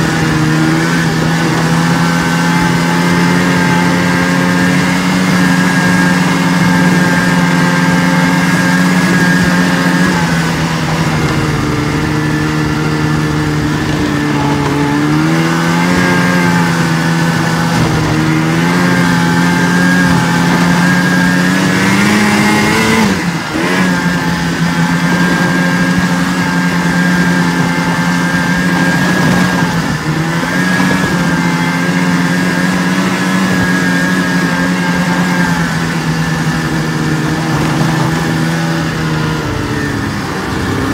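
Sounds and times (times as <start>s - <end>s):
snowmobile engine running: 0.0s - 40.9s.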